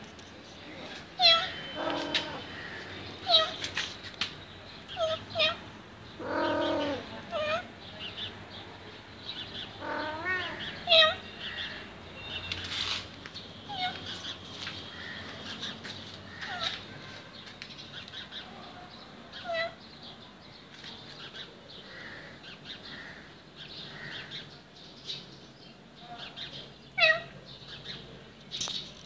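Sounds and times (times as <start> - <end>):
cat meowing: 1.2 - 2.6, 3.2 - 3.6, 4.9 - 5.6, 6.2 - 7.7, 9.8 - 11.2, 27.0 - 27.3.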